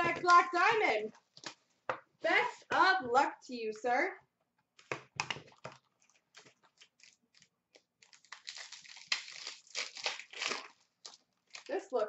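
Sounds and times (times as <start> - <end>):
packaging rustling and tearing: 5.4 - 11.9.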